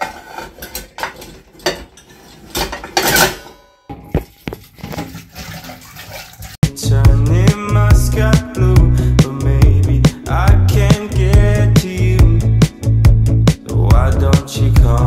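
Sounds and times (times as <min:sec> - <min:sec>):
metal pots clattering in sink: 0:00.0 - 0:06.6
tap water running: 0:04.0 - 0:06.6
music with a beat: 0:06.6 - 0:15.0.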